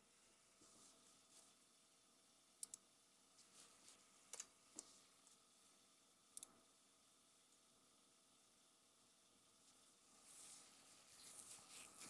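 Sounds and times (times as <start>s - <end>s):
computer mouse clicks: 2.6s - 2.8s.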